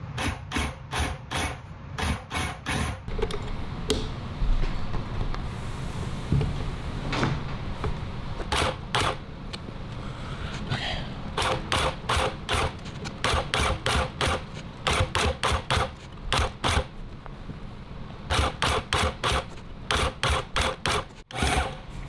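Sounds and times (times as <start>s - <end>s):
industrial sewing machine stitching: 18.3s - 21.8s.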